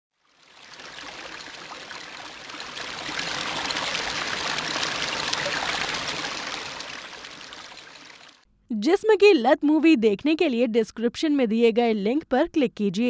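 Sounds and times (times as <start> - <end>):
flowing trickling water: 0.2 - 8.4.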